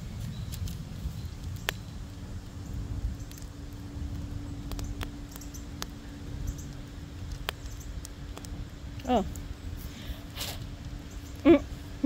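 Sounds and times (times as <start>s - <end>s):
low rumble: 0.0s - 12.0s
steady low hum: 0.0s - 12.0s
wood fire crackling: 0.0s - 12.0s.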